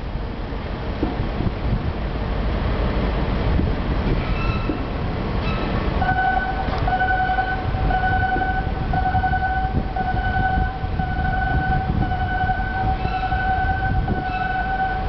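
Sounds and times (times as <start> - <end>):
low rumble: 3.4 - 15.0
crane warning alarm tone: 5.4 - 15.0.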